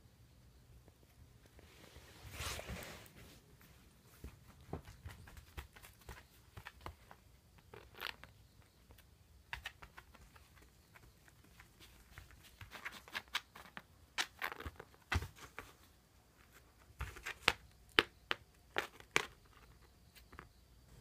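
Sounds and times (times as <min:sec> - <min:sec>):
paws tapping on mats: 0:04.1 - 0:07.2.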